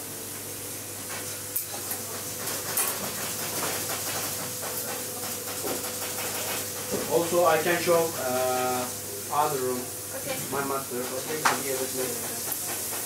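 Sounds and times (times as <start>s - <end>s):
steady hiss: 7.1s - 13.0s.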